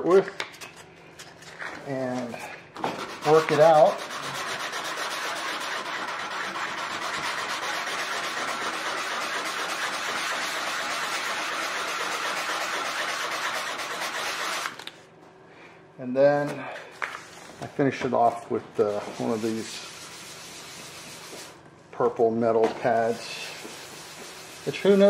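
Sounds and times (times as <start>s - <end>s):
sandpaper scrubbing on metal: 2.3s - 14.8s, 18.8s - 21.6s, 22.8s - 25.0s.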